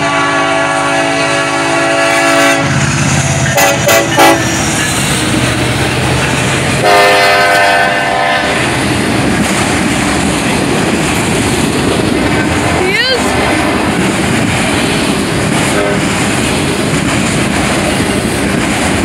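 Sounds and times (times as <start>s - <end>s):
train horn blast: 0.0s - 5.4s, 6.8s - 8.7s, 15.7s - 16.2s
freight train cars rumbling past: 0.0s - 19.0s.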